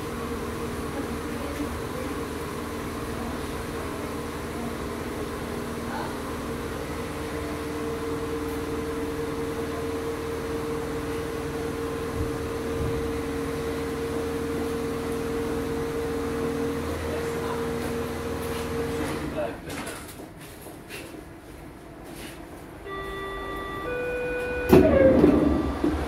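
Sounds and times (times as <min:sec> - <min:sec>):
train equipment humming: 0:21.6 - 0:26.0.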